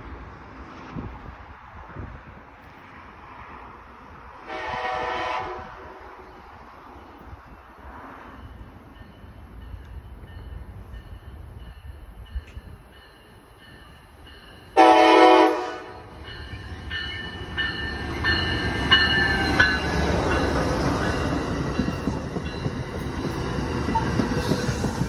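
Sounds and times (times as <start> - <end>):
train wheels rumbling on rails: 0.0 - 25.0
train horn blast: 4.4 - 6.2, 14.8 - 16.1
train bell ringing: 8.3 - 25.0.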